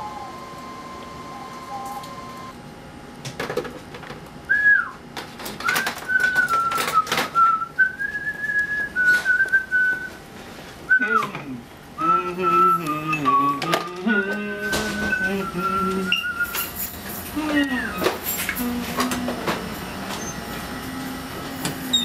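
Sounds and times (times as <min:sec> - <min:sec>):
person whistling a slow tune: 0:00.0 - 0:02.3, 0:04.5 - 0:05.0, 0:05.6 - 0:10.2, 0:12.0 - 0:16.7.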